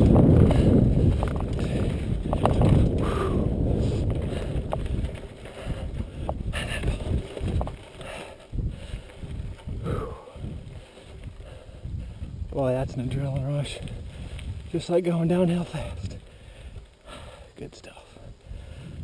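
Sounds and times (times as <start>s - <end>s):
bike clicks and knocks: 0.0s - 10.2s
tyre rumble on dirt: 0.0s - 11.5s
wind buffeting microphone: 0.0s - 19.0s.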